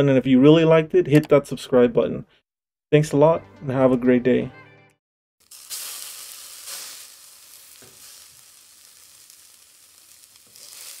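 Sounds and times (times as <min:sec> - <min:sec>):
burgers sizzling on a grill: 0:05.4 - 0:11.0
crackling pops: 0:05.4 - 0:11.0.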